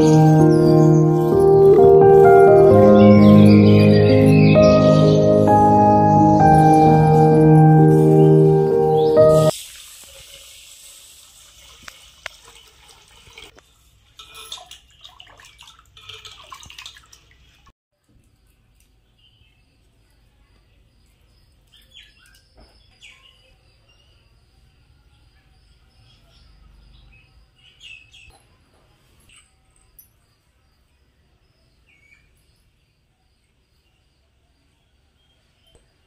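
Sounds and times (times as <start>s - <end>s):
water pouring onto rice: 9.3s - 17.7s.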